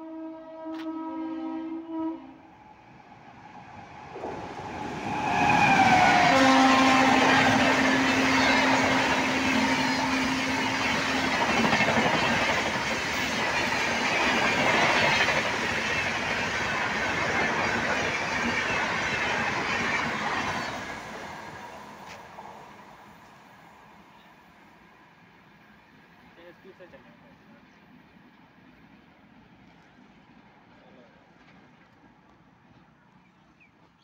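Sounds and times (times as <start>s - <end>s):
train horn: 0.0s - 2.6s, 5.1s - 11.4s
train passing with wheel clatter: 0.0s - 34.0s.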